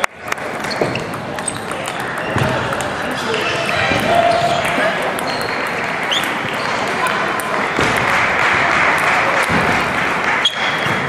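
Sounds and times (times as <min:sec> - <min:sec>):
table tennis balls ticking: 0:00.0 - 0:07.7
many voices: 0:00.0 - 0:11.0.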